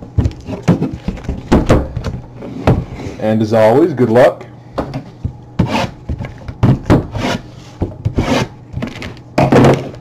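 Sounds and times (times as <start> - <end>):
cardboard boxes scraping on table: 5.6 - 6.0, 7.1 - 8.5.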